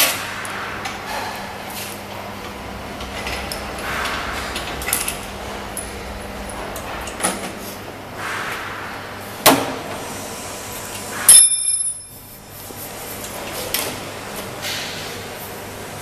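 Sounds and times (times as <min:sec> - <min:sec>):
metallic clang ringing: 0:11.3 - 0:12.2.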